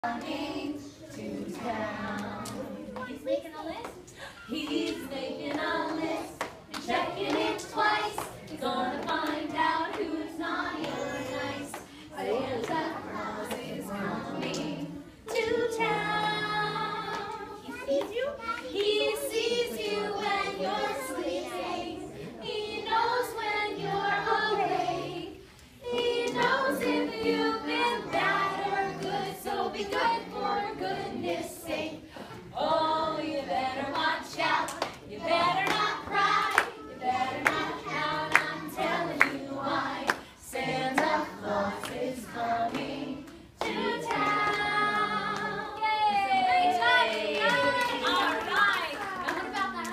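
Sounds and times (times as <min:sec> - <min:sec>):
women and children singing: 0:00.0 - 0:49.9
hands clapping along: 0:25.9 - 0:27.3, 0:34.6 - 0:36.7, 0:37.4 - 0:39.4, 0:42.7 - 0:45.6, 0:47.0 - 0:49.9.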